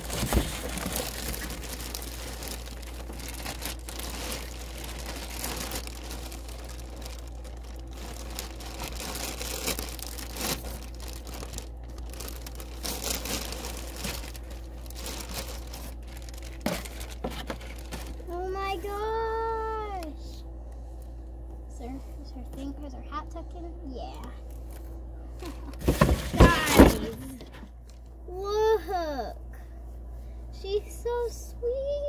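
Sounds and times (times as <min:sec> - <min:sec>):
plastic bag crinkling: 0:00.0 - 0:18.6, 0:25.5 - 0:28.1.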